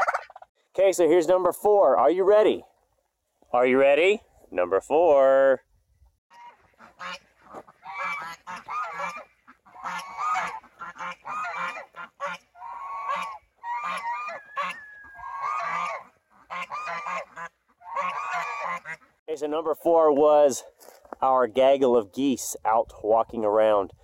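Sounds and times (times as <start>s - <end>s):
geese honking: 6.3s - 19.2s.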